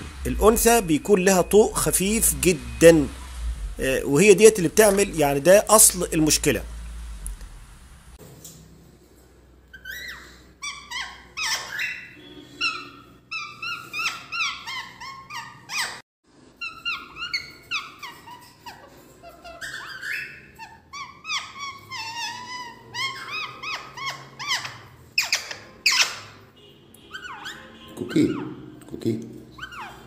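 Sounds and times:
parakeet squawky chirps: 0:09.7 - 0:16.0, 0:16.6 - 0:26.4, 0:27.0 - 0:28.8, 0:29.6 - 0:30.0.

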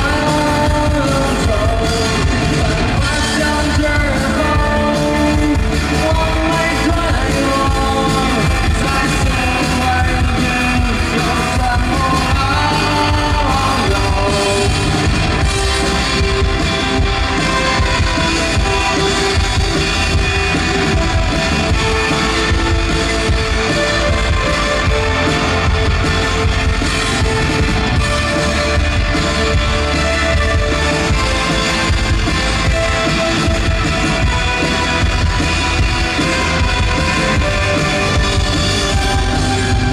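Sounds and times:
person singing: 0:00.0 - 0:16.1
drum kit: 0:00.0 - 0:39.9
electric guitar: 0:00.0 - 0:39.9.

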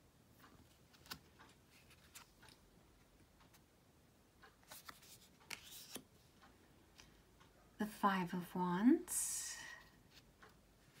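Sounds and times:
cards being handled: 0:00.9 - 0:02.6, 0:04.6 - 0:06.1.

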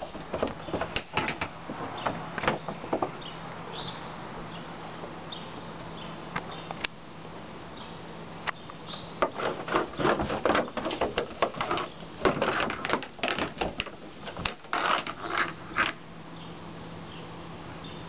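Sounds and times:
broom scraping on wooden boards: 0:09.2 - 0:16.0.

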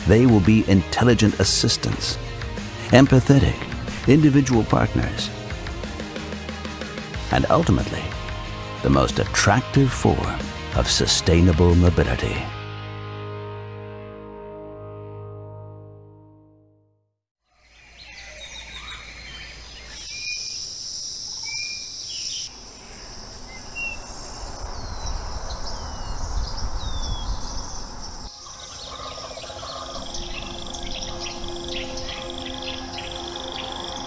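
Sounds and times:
birds chirping: 0:00.0 - 0:12.5, 0:17.6 - 0:34.0
insects buzzing: 0:17.6 - 0:34.0.

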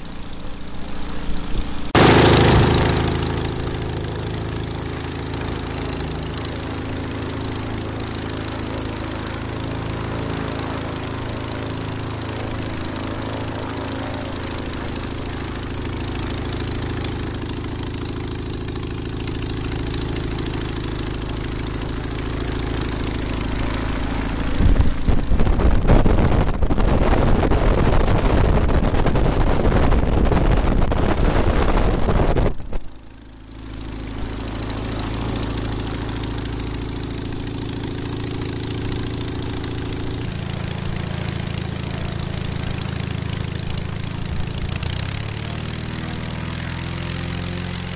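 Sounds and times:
aircraft engine running: 0:00.0 - 0:47.9
rush of air noise: 0:23.0 - 0:33.0.

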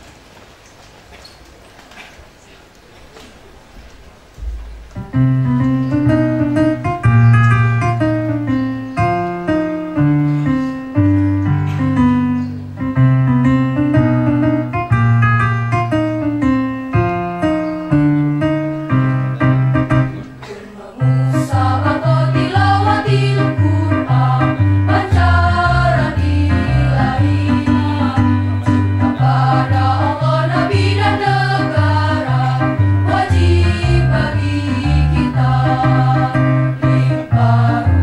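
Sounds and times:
march-like instrumental chords: 0:04.4 - 0:20.5, 0:21.2 - 0:38.0
girls' choir singing: 0:20.5 - 0:38.0.

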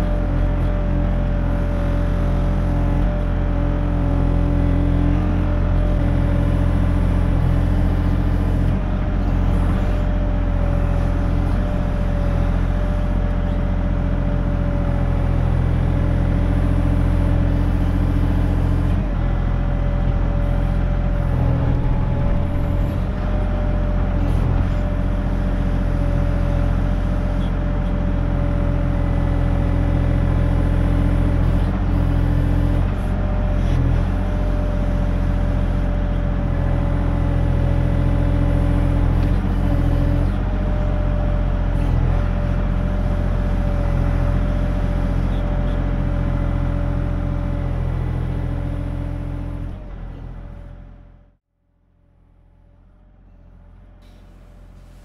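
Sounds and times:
diesel engine running: 0:00.0 - 0:51.4, 0:52.1 - 0:55.0
steady hydraulic whine: 0:20.4 - 0:24.9, 0:53.4 - 0:55.0.

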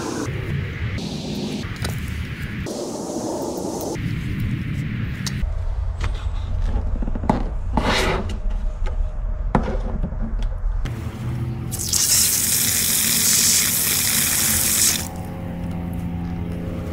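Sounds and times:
water gushing from faucet: 0:11.8 - 0:15.1.

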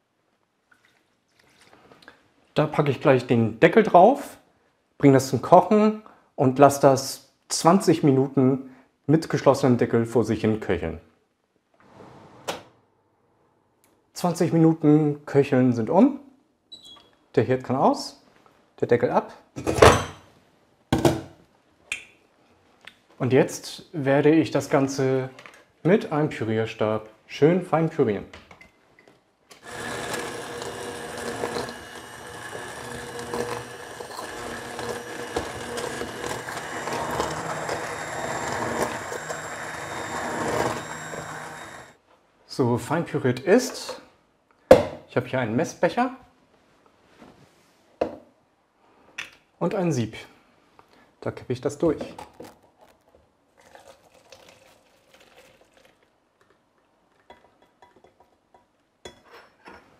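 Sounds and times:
immersion blender running: 0:29.6 - 0:42.0
thick sauce pouring through sieve: 0:52.3 - 0:56.2.

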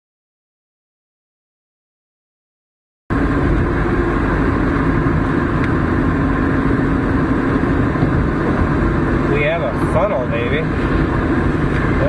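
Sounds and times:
vehicle road and engine noise: 0:03.1 - 0:12.0.

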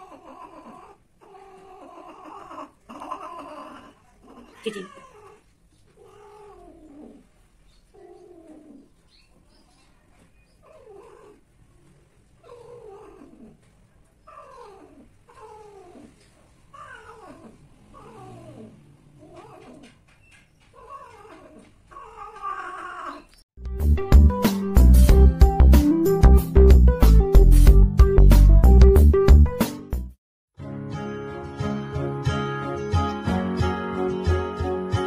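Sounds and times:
cat yowling: 0:00.0 - 0:05.4, 0:16.8 - 0:19.9, 0:20.8 - 0:23.3.

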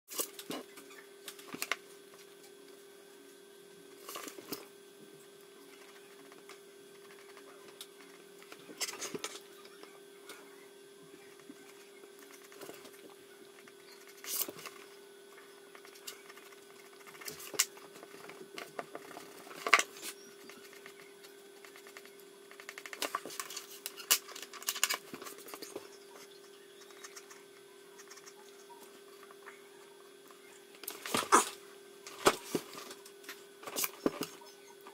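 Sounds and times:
faint steady hum: 0:00.1 - 0:34.9
pencil scratching on paper: 0:26.9 - 0:28.6.

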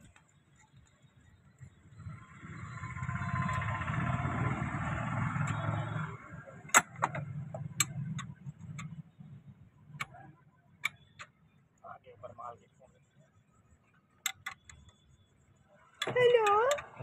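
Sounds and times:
vehicle engine running: 0:01.7 - 0:10.1
metallic spanner clicks: 0:14.2 - 0:15.0.

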